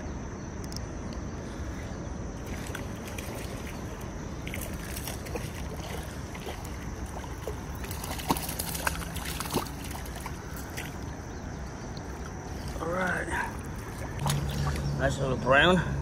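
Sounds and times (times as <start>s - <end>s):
fish splashing and thrashing: 2.4s - 15.0s
rushing water: 2.4s - 16.0s.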